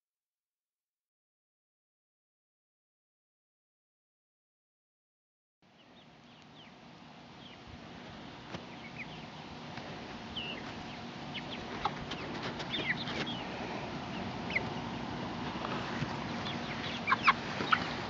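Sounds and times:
low steady background noise: 5.6s - 18.0s
chicks peeping and chirping: 5.7s - 18.0s.

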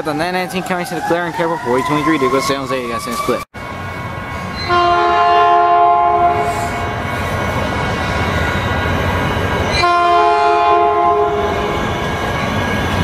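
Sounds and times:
train rumble: 0.0s - 13.0s
train air horn: 4.7s - 6.9s, 9.8s - 11.7s.

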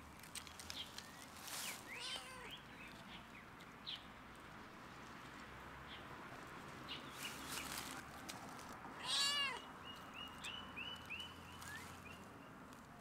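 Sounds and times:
cat meowing: 1.9s - 2.5s, 9.0s - 9.7s.

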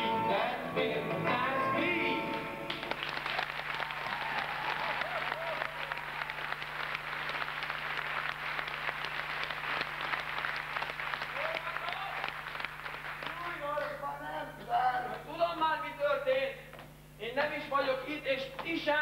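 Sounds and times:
singing and music: 0.0s - 2.8s
audience clapping: 2.3s - 14.2s.

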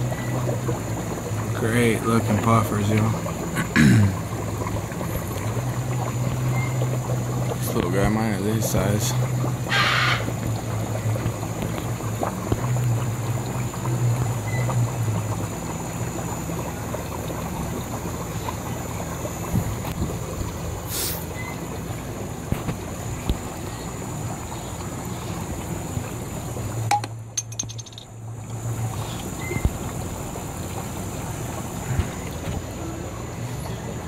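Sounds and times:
aquarium filters bubbling: 0.0s - 34.0s
brief hiss: 20.9s - 21.3s.

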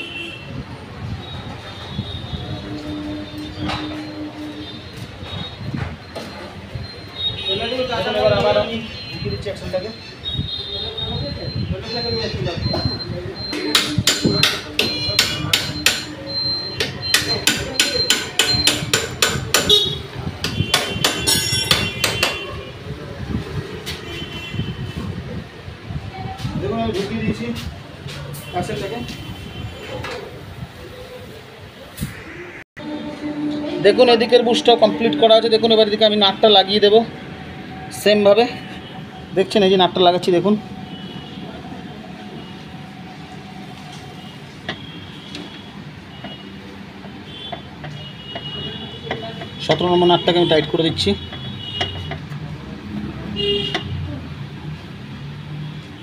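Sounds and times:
hammer striking metal axle: 13.5s - 22.5s.

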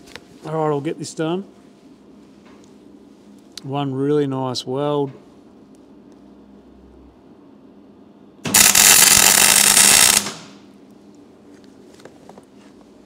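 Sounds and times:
welder arc crackling: 8.5s - 10.6s.

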